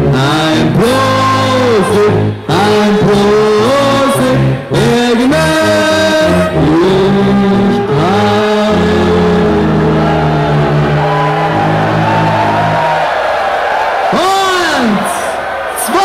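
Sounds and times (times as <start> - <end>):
brass band playing: 0.0 - 12.2
crowd singing along: 0.0 - 12.9.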